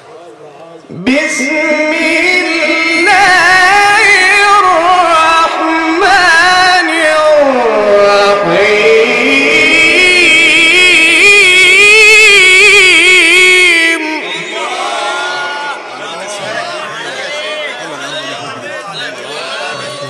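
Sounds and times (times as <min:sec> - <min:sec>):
man reciting melodically: 0:00.8 - 0:16.8.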